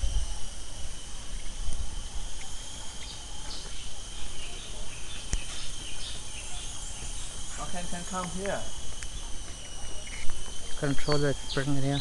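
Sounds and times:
insects chirring: 0.0s - 12.0s
sharp click: 8.2s - 11.3s.

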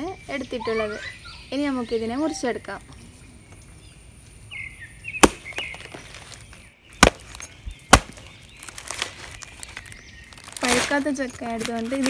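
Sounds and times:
knife chopping into tough rind: 5.2s - 5.9s.

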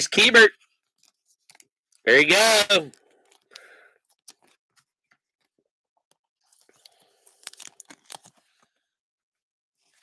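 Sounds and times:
plastic card sleeve rustling: 0.6s - 2.0s, 2.8s - 8.9s.

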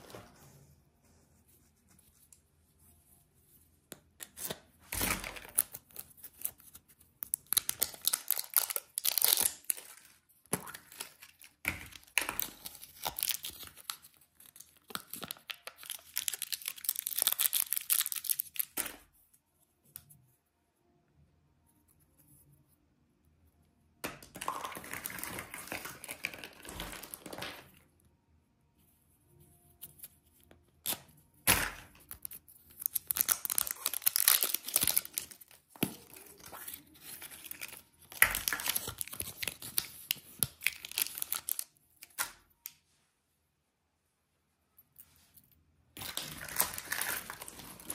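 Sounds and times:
plastic wrapping crinkling: 7.4s - 10.1s, 10.7s - 18.8s, 24.4s - 27.7s, 32.8s - 41.7s, 46.0s - 47.9s.

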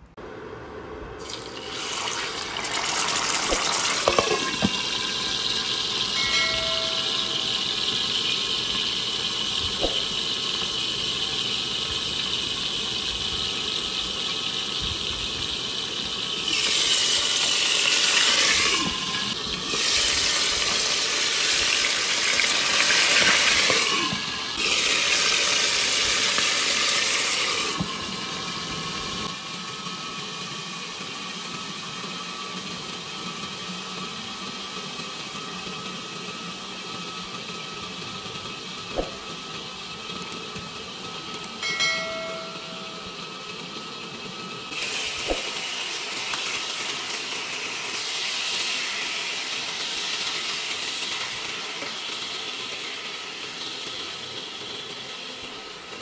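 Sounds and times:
fish sizzling in a pan: 1.4s - 33.0s, 44.8s - 55.1s.

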